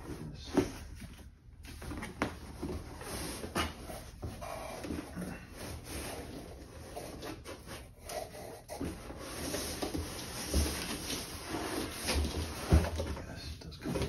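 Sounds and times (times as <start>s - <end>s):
cardboard rubbing and scraping: 1.8s - 13.1s
carton sliding against box: 2.7s - 13.0s.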